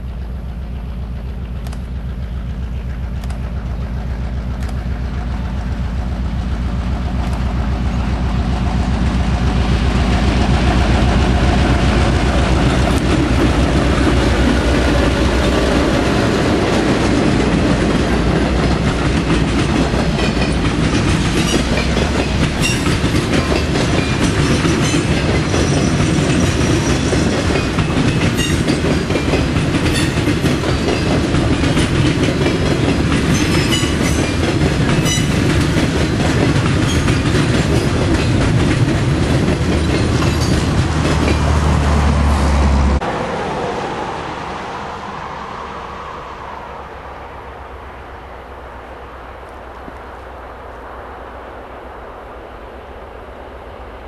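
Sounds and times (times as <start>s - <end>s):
train wheels clattering over rail joints: 0.0s - 42.0s
locomotive engine drone: 0.0s - 54.0s.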